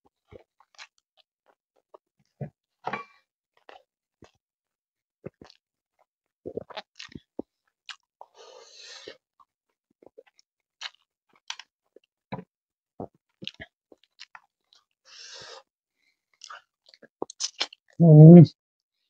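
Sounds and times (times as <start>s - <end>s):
person chewing food: 0.2s - 2.0s, 3.6s - 4.4s, 5.2s - 12.2s, 13.0s - 15.7s, 16.3s - 17.9s
wet mouth smacks: 17.2s - 17.8s.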